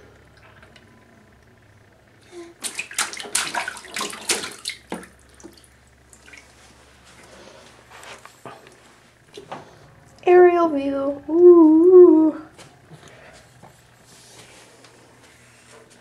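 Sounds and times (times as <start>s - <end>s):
baby splashing bathwater: 2.4s - 6.6s.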